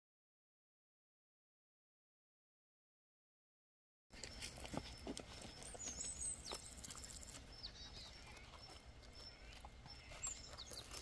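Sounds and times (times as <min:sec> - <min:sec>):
small birds chirping: 0:04.1 - 0:11.0.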